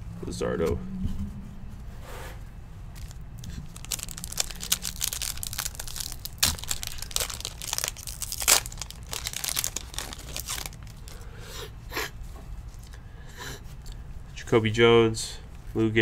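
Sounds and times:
crinkly wrapper tearing: 3.0s - 11.2s
wrapper ripping: 3.0s - 11.2s.

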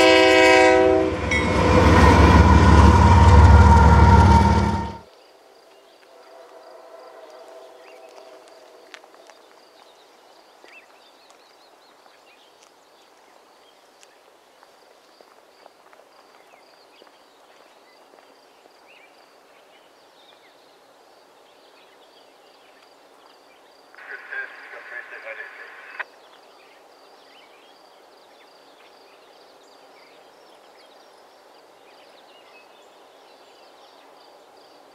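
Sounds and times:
train horn: 0.0s - 5.0s, 6.2s - 8.5s
train rolling noise: 0.0s - 5.1s, 6.1s - 9.3s
faint hum: 24.0s - 26.0s.

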